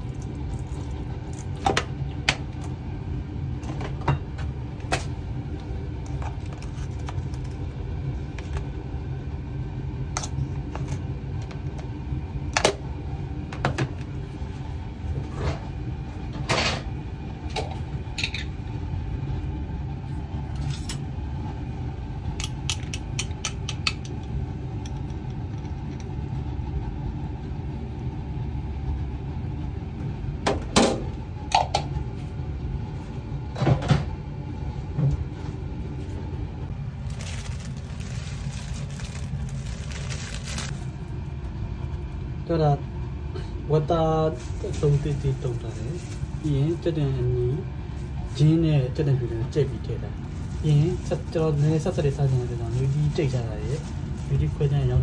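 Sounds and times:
steady low rumble: 0.0 - 55.0.

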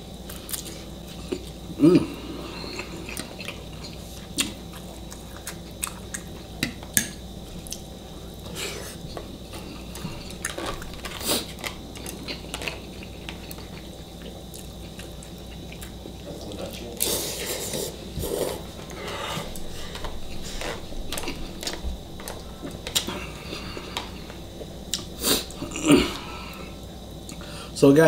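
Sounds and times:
chewing and mouth smacks: 2.7 - 17.1, 18.8 - 25.6.

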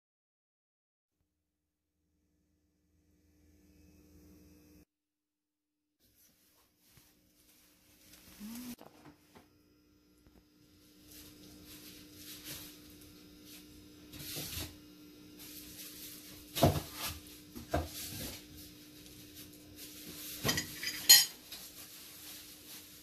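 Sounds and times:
metal spoon clinking and scraping: 20.4 - 21.4.

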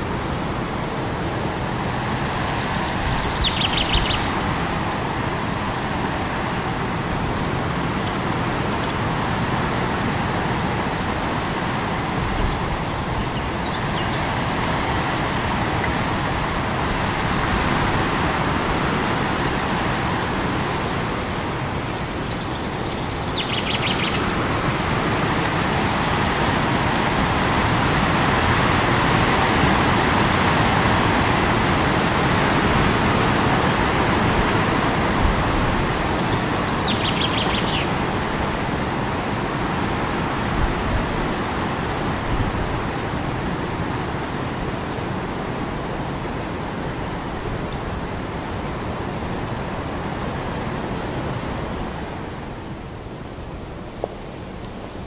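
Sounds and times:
loud rushing wind: 0.0 - 55.0
high bird call: 35.7 - 38.0.

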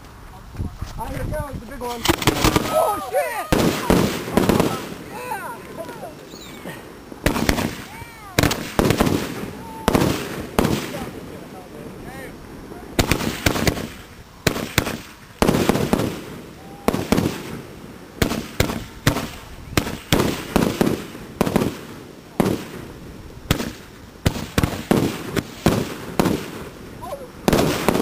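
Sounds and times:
firework tube bangs: 2.0 - 2.8, 3.5 - 5.0, 7.2 - 11.1, 13.0 - 17.6, 18.2 - 22.8, 23.5 - 26.8, 27.5 - 28.0.

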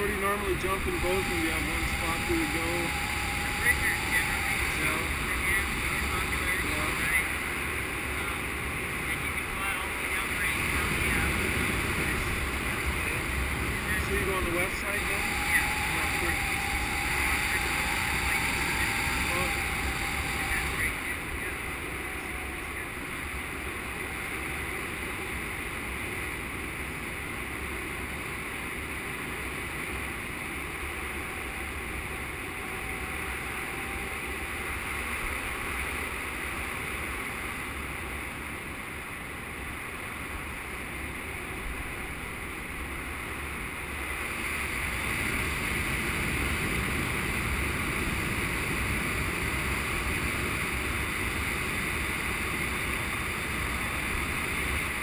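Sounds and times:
airflow rushing over microphone: 0.0 - 24.0.

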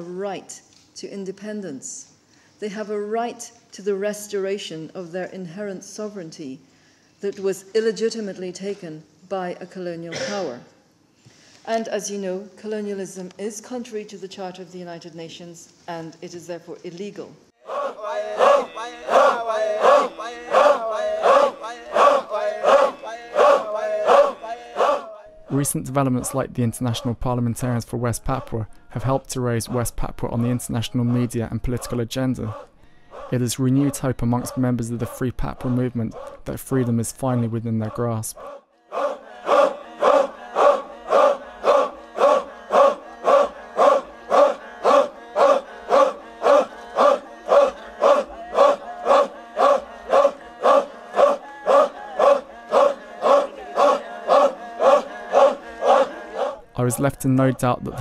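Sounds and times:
crowd of men chanting: 17.6 - 25.6, 30.9 - 36.4, 37.8 - 57.2.

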